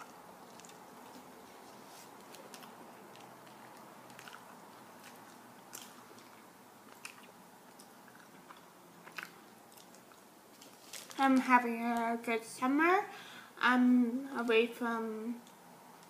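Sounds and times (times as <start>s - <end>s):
faint chewing: 0.0s - 11.2s
steady low hiss: 0.0s - 16.0s.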